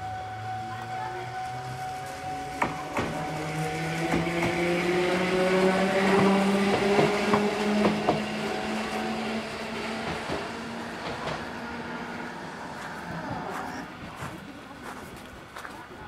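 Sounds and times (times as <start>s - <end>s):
electric train motor hum: 0.0s - 14.8s.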